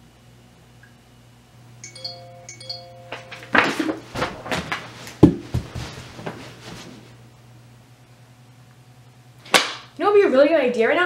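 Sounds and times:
electronic notification chime: 1.8 - 3.6
rustling of bedding and clothing: 3.2 - 7.2.

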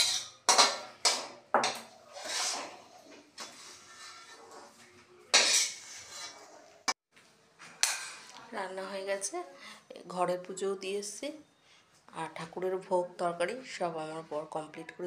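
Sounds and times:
spatula scraping metal pan: 0.0 - 7.0.

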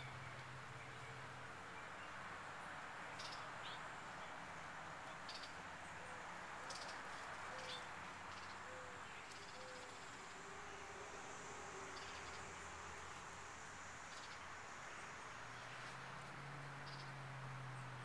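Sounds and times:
low outdoor hiss: 0.0 - 18.0.

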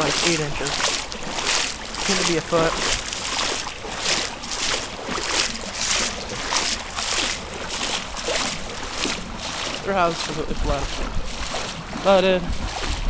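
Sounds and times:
wading through water splashing: 0.0 - 13.0.

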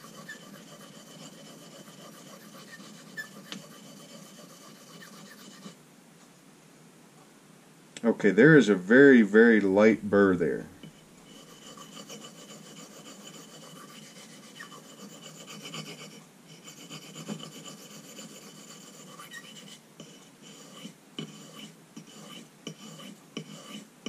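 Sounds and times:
knife blade scraping on whetstone: 0.0 - 5.8, 10.8 - 23.9.

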